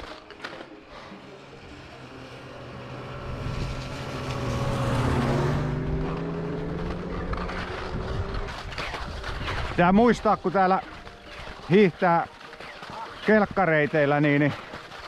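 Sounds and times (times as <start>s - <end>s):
snowmobile engine passing by: 0.7s - 10.7s.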